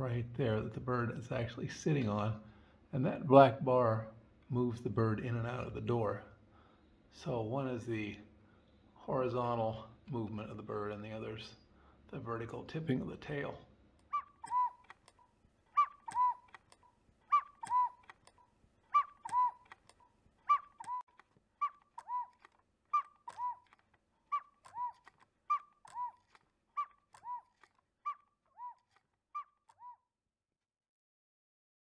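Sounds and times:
cuckoo clock click: 14.0s - 30.0s
cuckoo clock two-note call: 14.1s - 15.0s, 15.8s - 16.6s, 17.3s - 18.1s, 19.0s - 19.8s, 21.6s - 23.7s, 24.4s - 27.5s.

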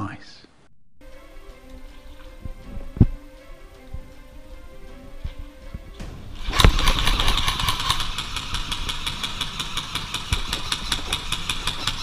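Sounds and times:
gearbox whine: 5.4s - 12.0s
airsoft gun full-auto firing: 6.4s - 12.0s.

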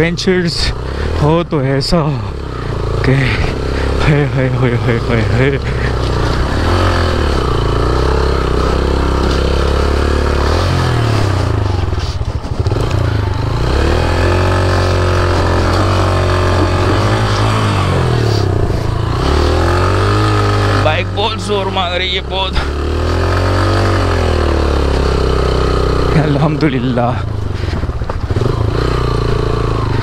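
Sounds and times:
motorcycle engine revving: 0.0s - 30.0s
clatter: 3.0s - 19.5s, 26.1s - 30.0s.

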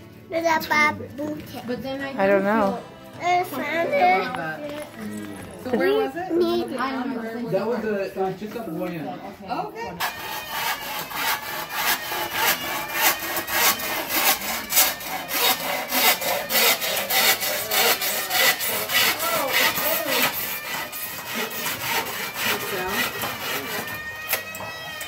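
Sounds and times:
hand saw cutting bamboo: 10.0s - 25.0s.

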